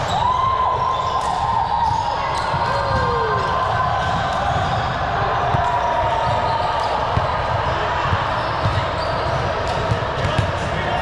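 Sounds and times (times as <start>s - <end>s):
balls thudding on court: 7.1s - 11.0s.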